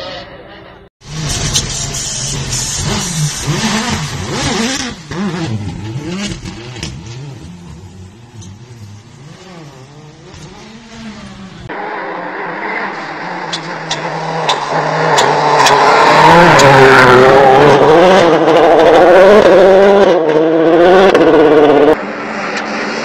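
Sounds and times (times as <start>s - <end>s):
rally car engine revving: 1.0s - 23.0s
hiss: 1.2s - 4.0s.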